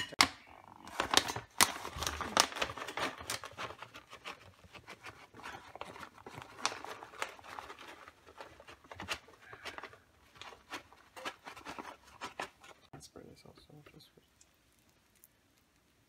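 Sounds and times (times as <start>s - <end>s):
plastic bag crinkling: 0.7s - 12.9s.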